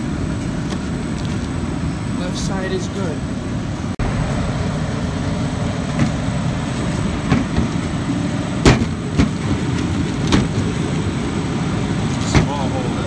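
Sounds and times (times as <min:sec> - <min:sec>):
loud machine noise: 0:00.0 - 0:13.0.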